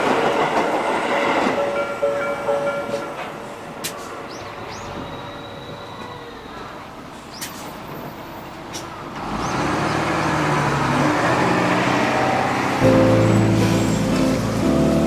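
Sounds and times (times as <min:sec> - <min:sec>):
bus engine revving past: 0:09.0 - 0:15.0.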